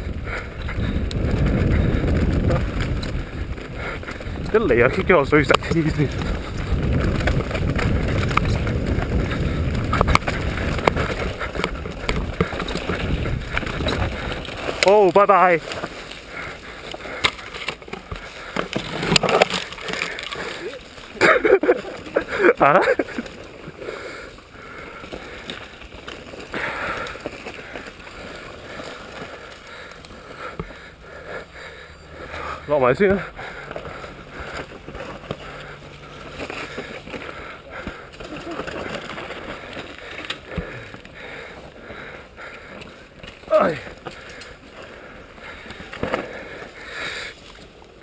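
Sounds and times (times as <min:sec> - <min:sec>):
wind rushing on microphone: 0:00.0 - 0:14.6
bike frame rattling: 0:00.0 - 0:48.0
bike tyres rumbling on dirt: 0:00.0 - 0:48.0
sharp clacks over bumps: 0:00.0 - 0:48.0
bike knocks and rattles: 0:00.1 - 0:16.0.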